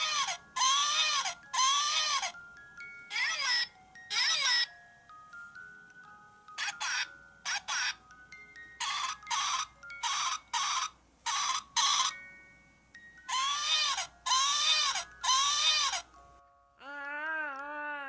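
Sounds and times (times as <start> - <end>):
doll baby-like calls: 0.0 - 4.8, 6.5 - 12.3, 13.2 - 16.2, 16.8 - 18.0
soft hummed tune: 0.0 - 18.0
doll breathy sounds: 16.8 - 18.0.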